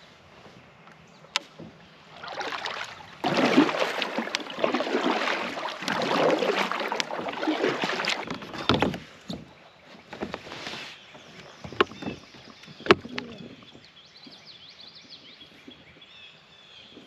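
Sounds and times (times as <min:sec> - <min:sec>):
paddle splashing in water: 0:01.4 - 0:13.9
water washing along kayak hull: 0:01.4 - 0:14.5.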